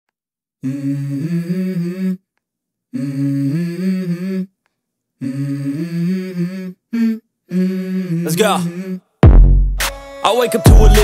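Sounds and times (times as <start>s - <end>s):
person humming wordless phrase: 0.6s - 2.2s, 2.9s - 4.6s, 5.2s - 9.1s, 10.5s - 11.0s.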